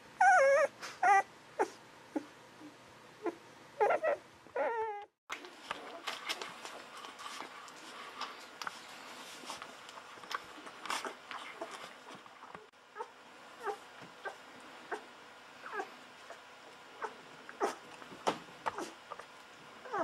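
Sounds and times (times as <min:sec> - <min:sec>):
puppy squeaking: 0:00.2 - 0:01.7, 0:03.2 - 0:05.1.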